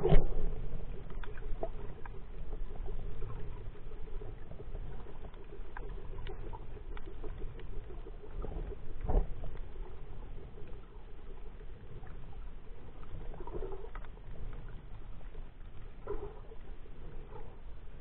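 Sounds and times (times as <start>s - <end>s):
faint clicks and crackles: 0.0s - 18.0s
muffled underwater rumble: 0.0s - 18.0s.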